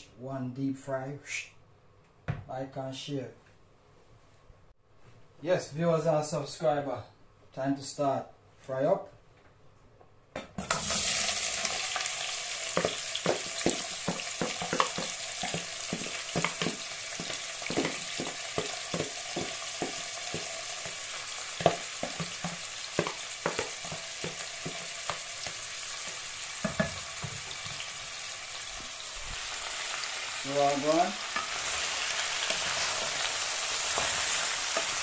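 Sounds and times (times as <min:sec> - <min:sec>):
hot oil sizzling: 0:10.6 - 0:35.0
wooden spoon knocking metal pot: 0:12.7 - 0:27.8.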